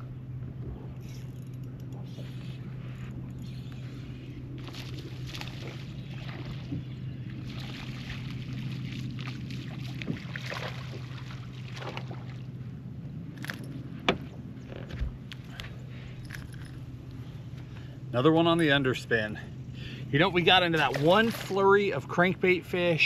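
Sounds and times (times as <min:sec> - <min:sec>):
steady low hum: 0:00.0 - 0:23.0
water splashing against boat: 0:04.4 - 0:12.6, 0:20.2 - 0:23.0.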